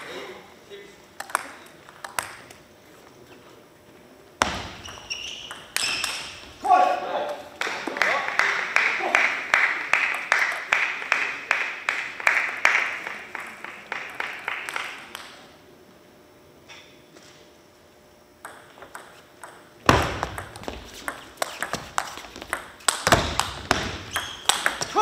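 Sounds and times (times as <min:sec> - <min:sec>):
table tennis rally: 0:01.1 - 0:02.6, 0:04.4 - 0:15.6, 0:18.4 - 0:25.0
table tennis ball bouncing: 0:04.4 - 0:06.5, 0:18.4 - 0:25.0.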